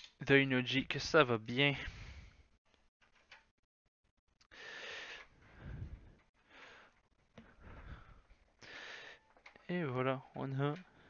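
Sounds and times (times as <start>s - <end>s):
person breathing softly: 1.8s - 2.6s, 4.5s - 9.5s.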